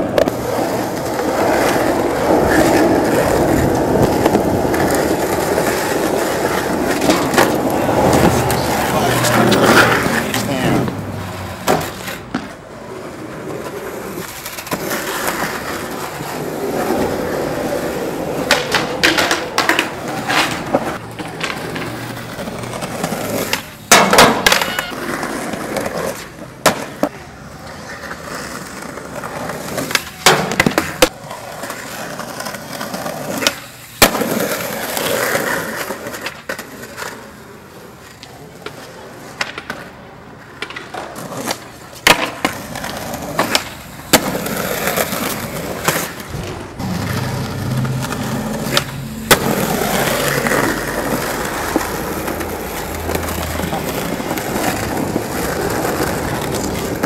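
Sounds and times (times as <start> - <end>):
skateboard pops and slaps: 0.0 - 8.6, 11.6 - 12.6, 18.4 - 22.0, 23.3 - 27.2, 29.2 - 37.2, 38.2 - 46.8
skateboard wheels rolling on asphalt: 0.0 - 57.0.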